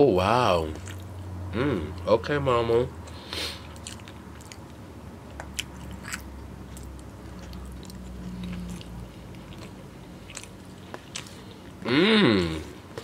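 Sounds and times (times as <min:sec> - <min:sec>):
low steady hum: 0:00.0 - 0:13.0
person chewing food: 0:00.6 - 0:02.1, 0:03.0 - 0:13.0.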